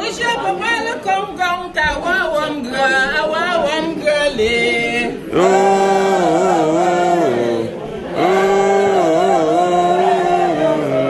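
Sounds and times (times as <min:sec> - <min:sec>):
group singing a cappella: 0:02.5 - 0:11.0.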